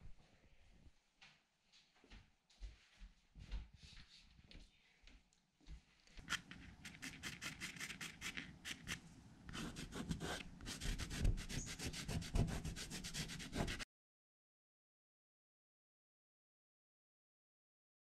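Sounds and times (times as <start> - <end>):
fingertips rubbing pastel: 6.2 - 13.8
pastel stick scraping paper: 6.2 - 13.8.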